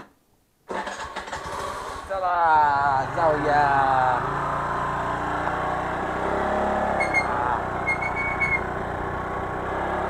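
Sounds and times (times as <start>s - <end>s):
scooter engine running: 0.7s - 10.0s
wind and road noise: 1.3s - 10.0s
short high chirps: 7.0s - 8.7s.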